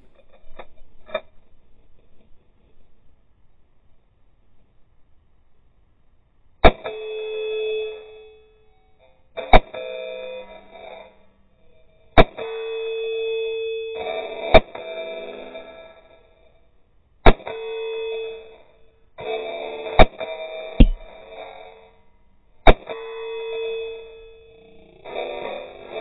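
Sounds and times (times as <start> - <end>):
steel target ringing: 20.8 - 21.1.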